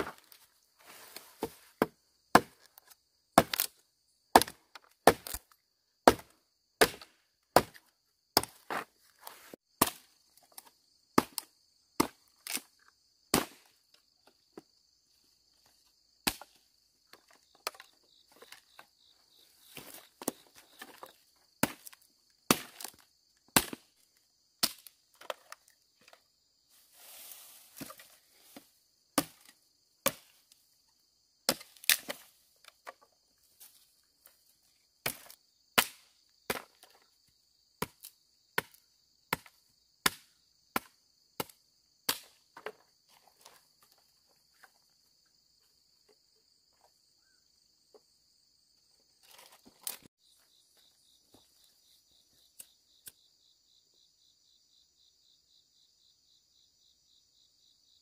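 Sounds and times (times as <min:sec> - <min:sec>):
high insect drone: 0:43.6 - 0:58.0.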